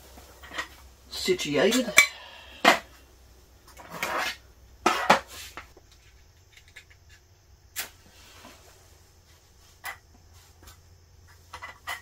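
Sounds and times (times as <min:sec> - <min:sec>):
metal tin scraping on table: 0:03.8 - 0:07.2.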